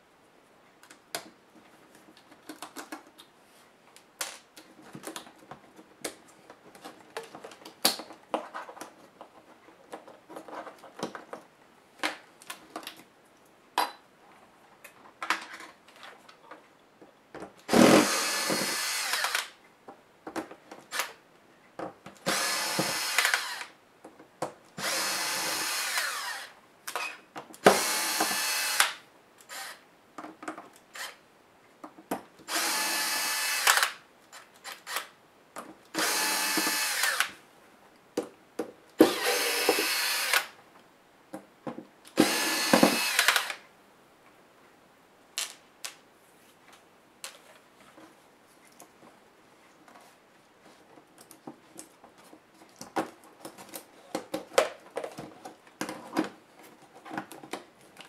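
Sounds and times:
power screwdriver running: 17.7s - 19.5s, 22.3s - 23.7s, 24.8s - 26.5s, 27.7s - 29.8s, 32.5s - 34.0s, 36.0s - 37.3s, 39.0s - 40.5s, 42.2s - 43.6s.

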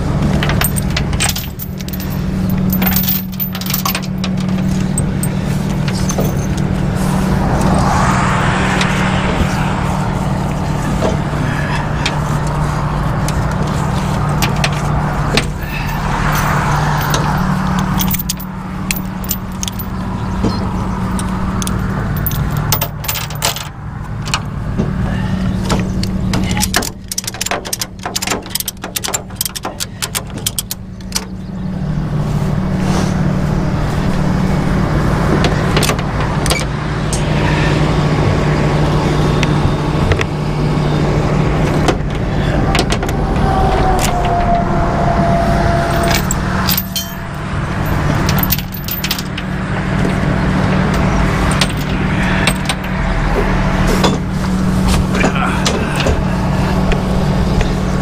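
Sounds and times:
metallic clinking and rattling: 0.0s - 7.0s, 10.4s - 24.5s, 25.7s - 31.4s, 45.8s - 53.0s
truck engine idling: 0.0s - 58.0s.

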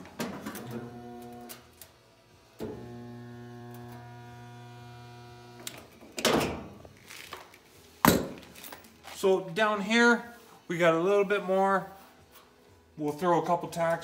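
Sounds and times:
spot welder humming: 0.8s - 6.0s.

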